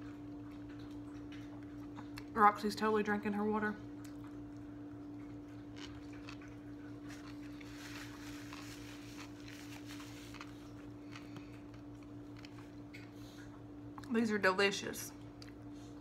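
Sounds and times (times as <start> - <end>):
steady low hum: 0.0 - 16.0
person chewing: 4.0 - 14.1
paper wrapper rustling: 7.1 - 10.6.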